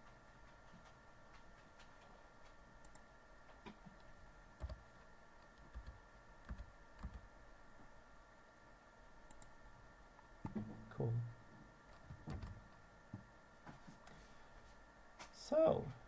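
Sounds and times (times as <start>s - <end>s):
faint steady background tone: 0.0s - 16.0s.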